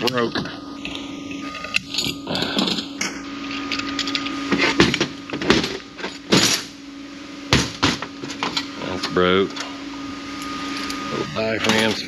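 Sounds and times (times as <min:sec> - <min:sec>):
metal parts scraping: 0:00.8 - 0:04.9.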